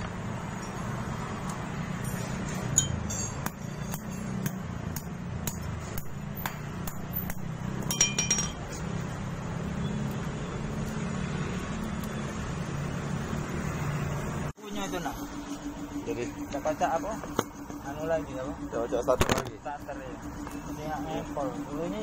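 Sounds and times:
metal tools clinking: 0:01.9 - 0:04.4, 0:07.8 - 0:08.8
steady low hum: 0:14.7 - 0:22.0.

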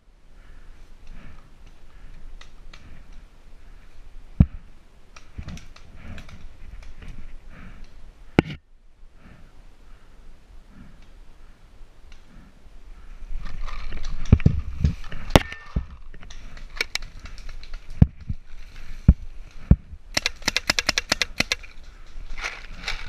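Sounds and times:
rustling: 0:10.7 - 0:23.0
paintball marker shots: 0:20.2 - 0:21.6.

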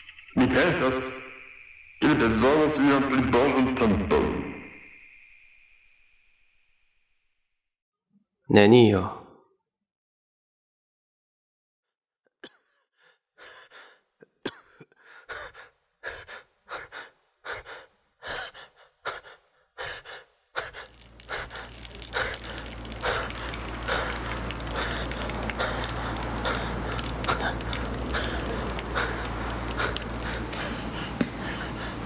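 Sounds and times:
person breathing hard: 0:12.4 - 0:14.2, 0:14.9 - 0:32.0.

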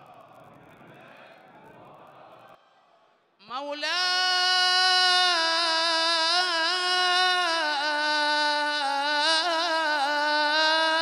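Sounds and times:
man chanting: 0:03.4 - 0:11.0.

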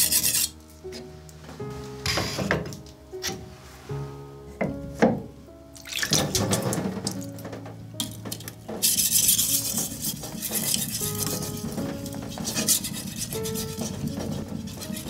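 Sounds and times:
knife scraping on whetstone: 0:00.0 - 0:01.0, 0:08.8 - 0:15.0.

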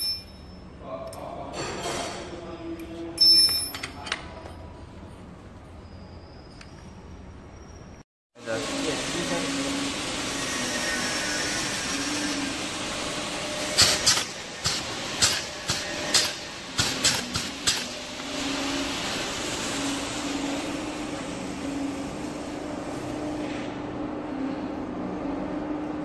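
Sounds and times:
steady mechanical hum: 0:00.0 - 0:26.0
pneumatic air bursts: 0:13.6 - 0:19.2.

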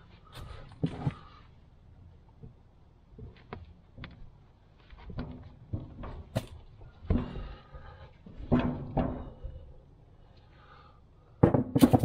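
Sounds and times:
dull knocks and thunks: 0:05.0 - 0:07.6, 0:08.3 - 0:09.6, 0:11.4 - 0:12.0.

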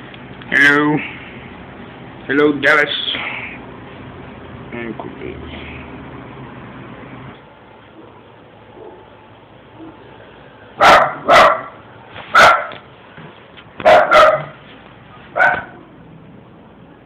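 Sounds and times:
dog barking: 0:10.8 - 0:12.8, 0:13.8 - 0:14.6, 0:15.3 - 0:15.8.

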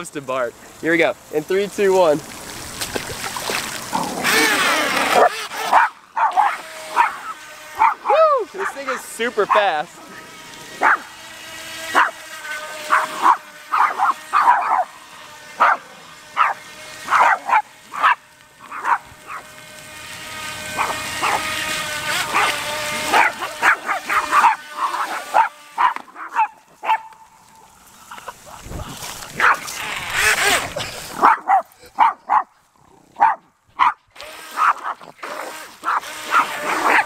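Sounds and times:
toy boat motor whine: 0:03.4 - 0:32.4, 0:34.1 - 0:37.0
small dogs barking: 0:03.9 - 0:09.8, 0:10.8 - 0:11.2, 0:11.9 - 0:12.2, 0:12.8 - 0:19.5, 0:20.6 - 0:27.3, 0:29.3 - 0:37.0.

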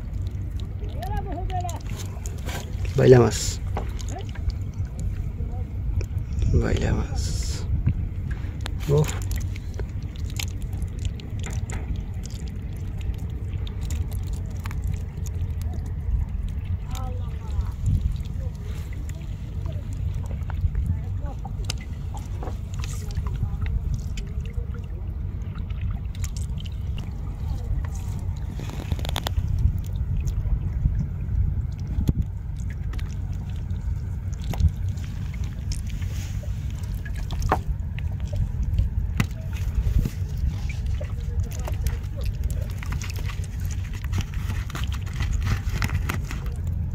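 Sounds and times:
water dripping: 0:00.0 - 0:06.3, 0:07.8 - 0:46.9
steady low rumble: 0:00.0 - 0:46.9
fishing net rustling: 0:00.1 - 0:04.5, 0:26.2 - 0:30.0, 0:32.3 - 0:46.9.

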